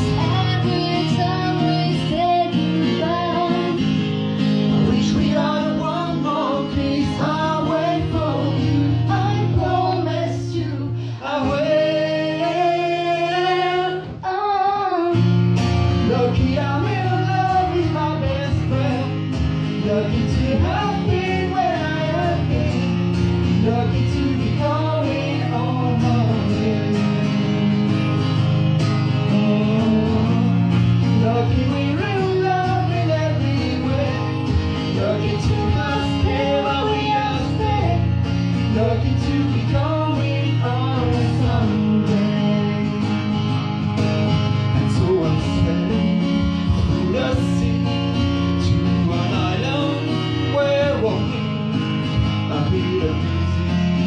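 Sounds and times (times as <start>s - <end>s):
person singing: 0.0s - 28.4s, 29.0s - 54.0s
guitar playing: 0.0s - 54.0s.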